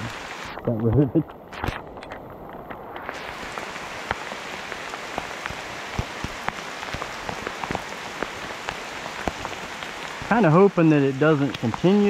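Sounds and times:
rain hiss: 0.0 - 12.0.

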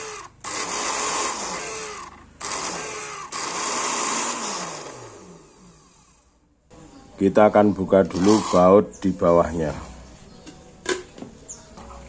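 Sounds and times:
blender motor running: 0.0 - 6.3, 8.1 - 8.8.

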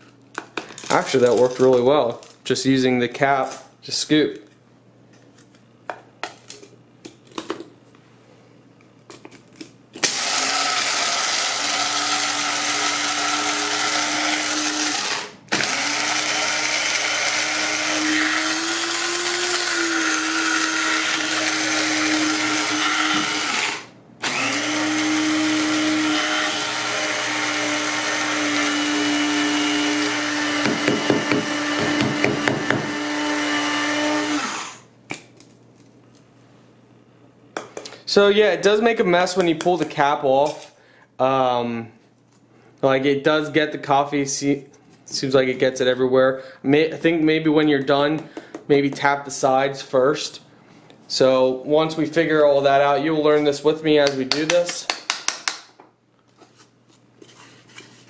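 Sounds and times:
coffee grinder motor whining: 10.0 - 34.8.

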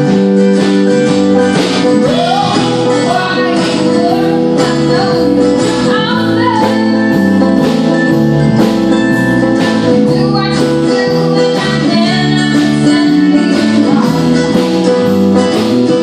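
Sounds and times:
drum kit beat: 0.0 - 16.0
mandolin: 0.0 - 16.0
strummed acoustic guitar: 0.0 - 16.0
woman singing: 1.9 - 7.8, 9.6 - 16.0.

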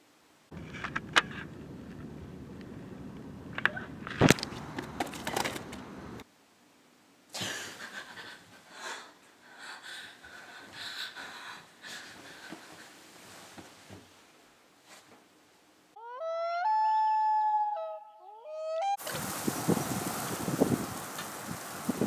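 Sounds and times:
woman panting: 7.4 - 13.0.

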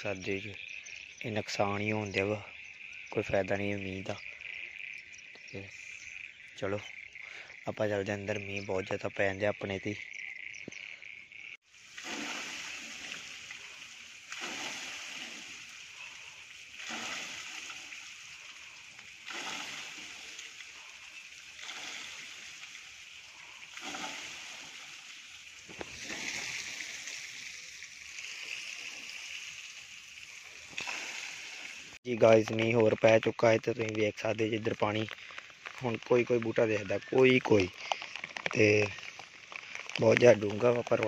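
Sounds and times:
rainwater splashing off roof edge: 11.7 - 41.0.

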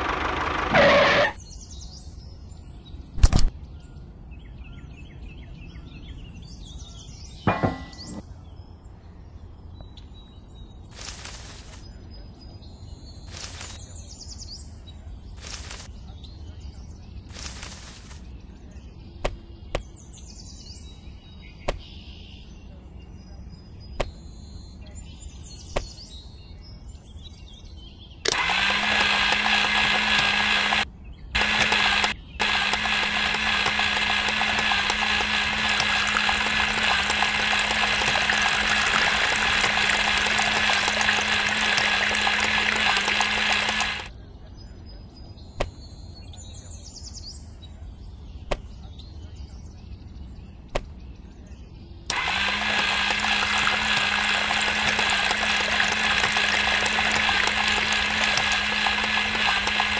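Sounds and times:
small motor grinding carrot: 0.0 - 1.4, 13.3 - 13.8, 15.4 - 15.9, 17.3 - 18.2, 28.3 - 30.8, 31.4 - 44.1, 52.1 - 59.9
sharp clicks: 31.4 - 44.1.

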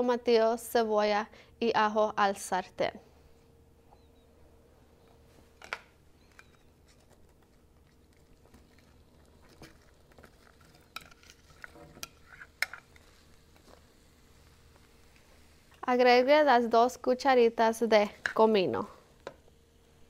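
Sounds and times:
spatula scraping and tapping pan: 10.2 - 13.8.

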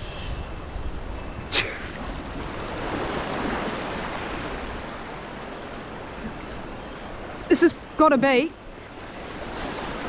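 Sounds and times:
surf washing in: 0.0 - 10.0
wind on microphone: 0.0 - 10.0.

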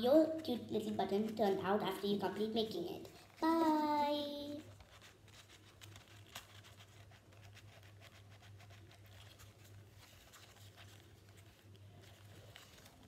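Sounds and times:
paper ticks and rustles: 0.0 - 4.0, 4.6 - 13.0.

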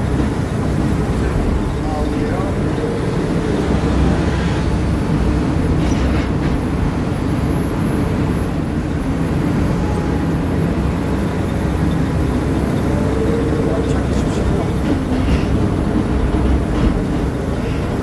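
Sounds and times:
high hydraulic whine: 0.0 - 6.6
excavator engine rumble: 0.0 - 18.0.

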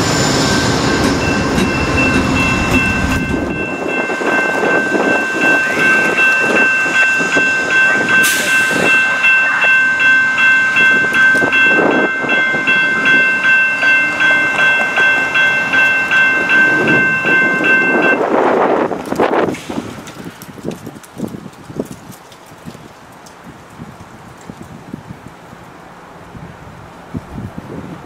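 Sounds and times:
railroad crossing bell ringing: 0.0 - 18.9
passenger train rumbling: 0.0 - 28.0.

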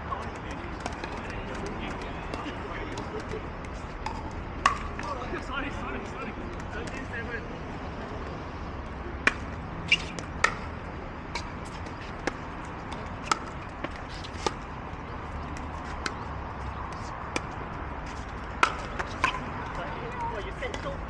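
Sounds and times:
paddles hitting plastic ball: 0.1 - 7.2, 9.2 - 10.7, 11.4 - 14.6, 16.9 - 21.0.

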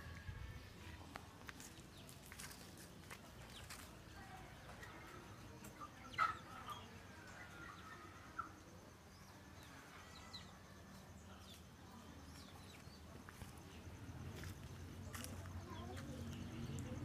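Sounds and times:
chickens calling faintly: 0.0 - 17.0
faint chirps: 3.5 - 17.0.

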